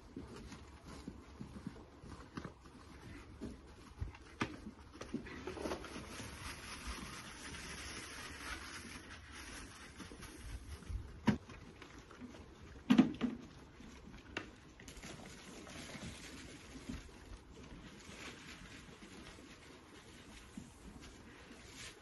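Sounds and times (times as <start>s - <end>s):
bucket knocks and clatter: 12.8s - 13.6s.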